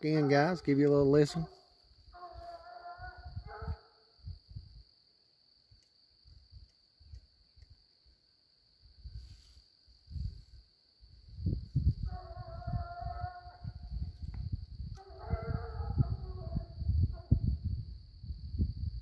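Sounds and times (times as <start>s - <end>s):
crickets trilling: 0.0s - 19.0s
distant hound baying: 1.3s - 4.0s, 12.0s - 13.8s, 14.9s - 17.4s.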